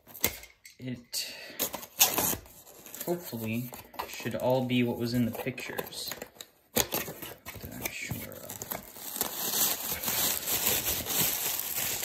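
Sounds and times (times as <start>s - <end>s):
packing paper crinkling: 6.9s - 12.0s.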